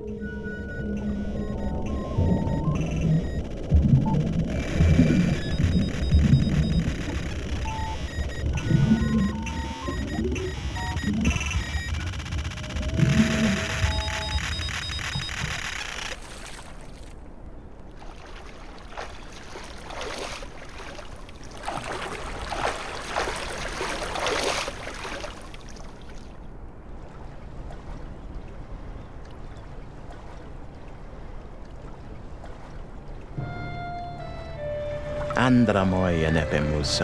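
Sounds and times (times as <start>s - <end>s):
waves lapping against rocks: 16.2s - 33.4s
music: 33.4s - 37.0s.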